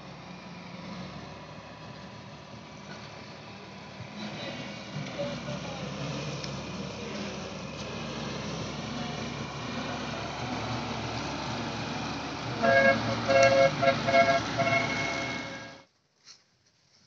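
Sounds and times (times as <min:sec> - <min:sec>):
diesel engine running: 0:00.0 - 0:15.9
horn short toots: 0:12.6 - 0:15.8.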